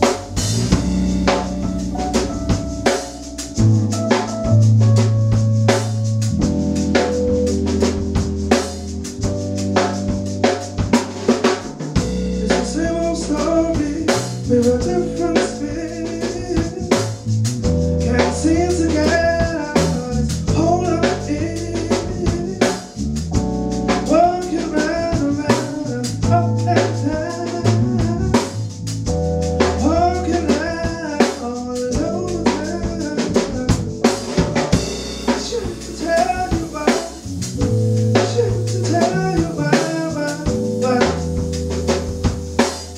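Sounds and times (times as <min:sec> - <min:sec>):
melodic lead line: 0:00.0 - 0:16.8, 0:32.0 - 0:42.9
keyboards: 0:00.0 - 0:42.9
live soul-funk band playing: 0:00.0 - 0:42.9
low bass notes: 0:00.0 - 0:42.9.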